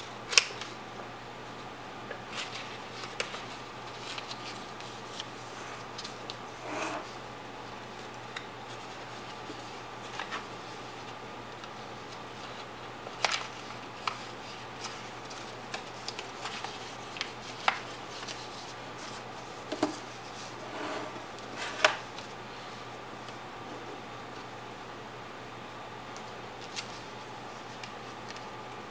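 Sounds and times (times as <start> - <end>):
faint hiss and hum: 0.0 - 28.9
paper folding and rustling: 2.2 - 6.4, 7.9 - 20.6, 26.6 - 28.5.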